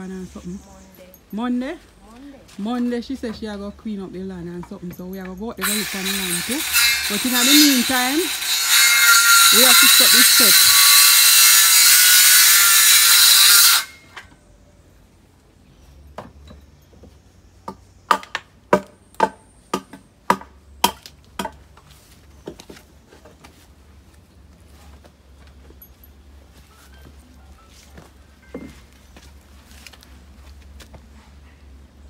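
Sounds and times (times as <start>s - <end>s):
power saw cutting wood: 5.6s - 14.2s.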